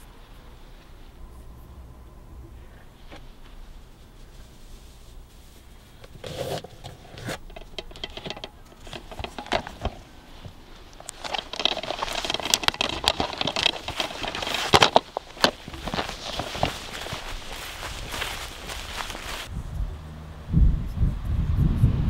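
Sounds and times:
clothing rustling: 2.7s - 19.5s
hand rustling under car seat: 3.1s - 19.5s
footsteps on grass: 7.4s - 19.5s.

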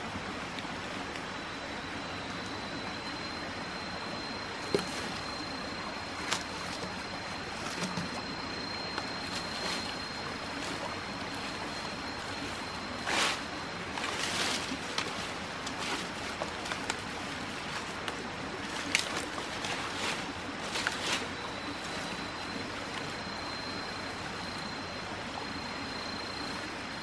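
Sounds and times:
stream water running: 0.0s - 27.0s
water splashes and clicks: 13.9s - 21.2s.

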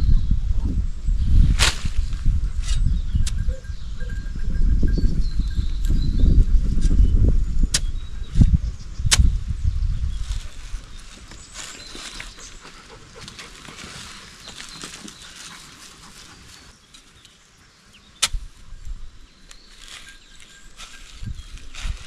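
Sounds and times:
spade scraping soil: 1.5s - 3.4s, 19.5s - 22.0s.

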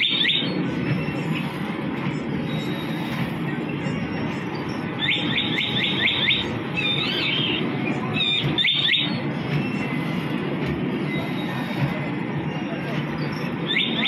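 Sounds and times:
fairground ride din: 0.0s - 14.0s
high bird-like chirps: 2.5s - 9.2s.

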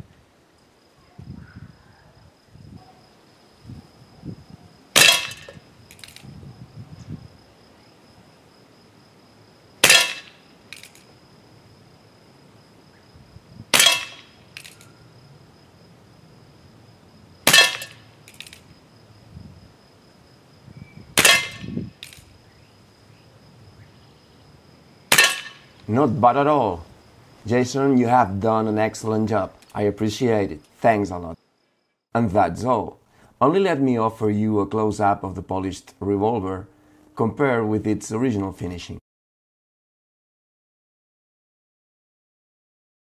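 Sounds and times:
air pistol shots: 5.0s - 6.2s, 9.8s - 11.0s, 13.7s - 14.8s, 17.4s - 18.6s, 21.2s - 22.2s, 25.1s - 25.6s.

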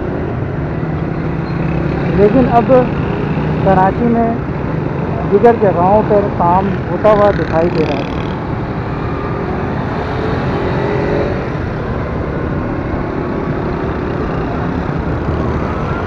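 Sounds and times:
road noise: 0.0s - 16.0s
small motorcycle engines: 5.2s - 8.4s.

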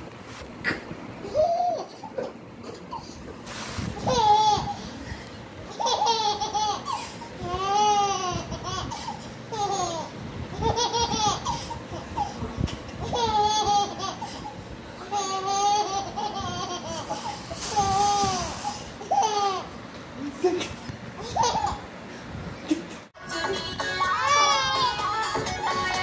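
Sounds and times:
toddler laughing: 1.2s - 3.4s, 4.0s - 4.9s, 5.7s - 12.4s, 13.0s - 21.9s.

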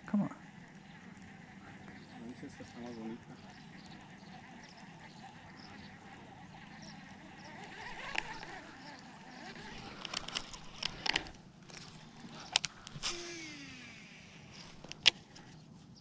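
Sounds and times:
rustling weeds: 0.0s - 16.0s
fishing reel clicks and knocks: 6.6s - 15.2s.

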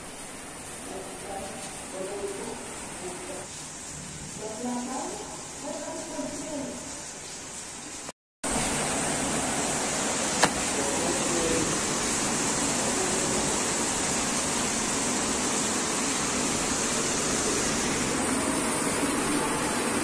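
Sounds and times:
sharp click: 10.4s - 10.6s.

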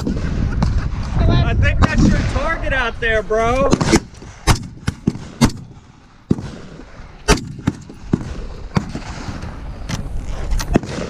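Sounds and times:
rifle gunshots: 3.6s - 9.4s, 10.7s - 11.0s.

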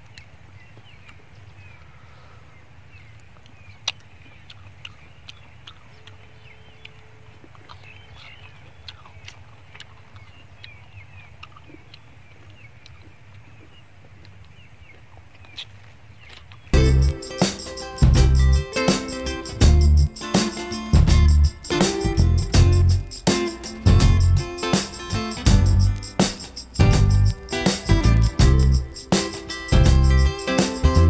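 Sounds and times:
faint birds chirping: 0.0s - 31.0s
eating clicks and smacks: 3.2s - 16.7s
steady low rumble: 16.8s - 17.3s, 18.0s - 18.7s, 19.5s - 20.2s, 21.0s - 26.2s, 26.8s - 29.0s, 29.7s - 31.0s.

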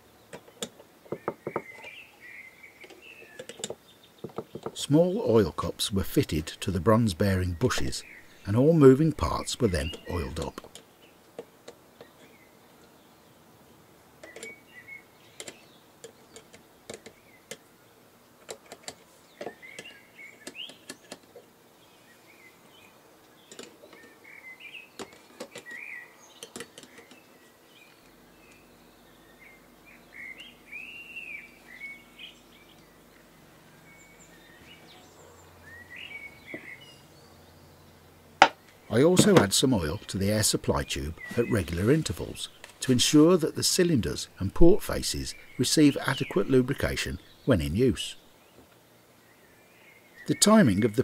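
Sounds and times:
faint bird chirps: 9.3s - 10.8s.

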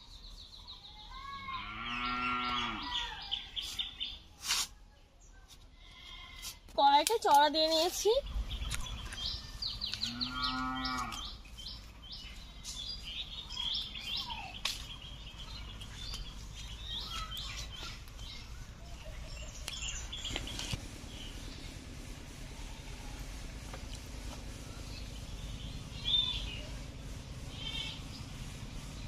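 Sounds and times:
birds chirping: 0.0s - 4.4s, 6.8s - 29.0s
cow mooing: 1.6s - 3.1s, 10.0s - 11.2s.

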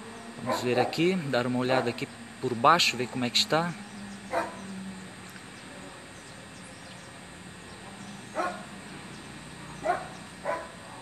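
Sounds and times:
dog barking: 0.4s - 1.0s, 4.3s - 4.6s, 8.3s - 8.7s, 9.8s - 11.0s.

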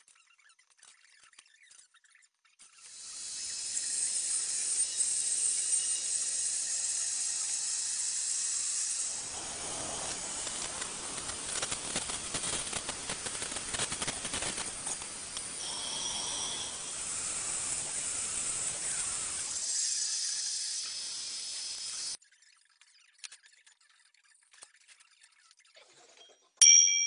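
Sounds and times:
blade rasping through sheet metal: 2.9s - 22.1s
bandsaw running hiss: 2.9s - 22.2s.

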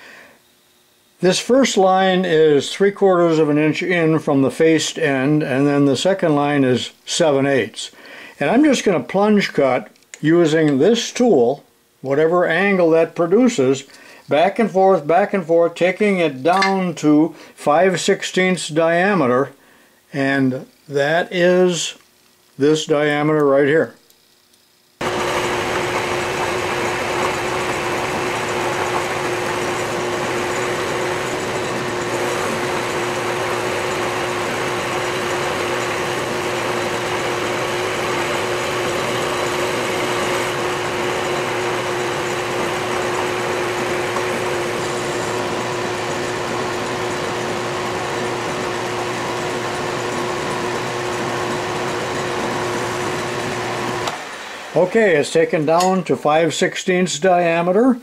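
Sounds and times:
lathe machine hum: 25.0s - 56.0s
lathe tool cutting metal: 25.0s - 56.1s.

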